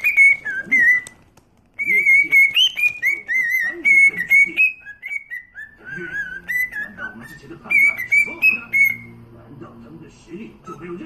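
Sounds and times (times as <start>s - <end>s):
cockatiel whistling a tune: 0.0s - 1.2s, 1.8s - 9.2s.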